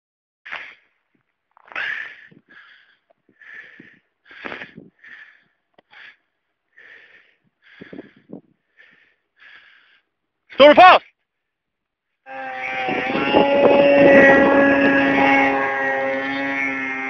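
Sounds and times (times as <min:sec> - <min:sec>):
person breathing hard: 0:01.6 - 0:10.2.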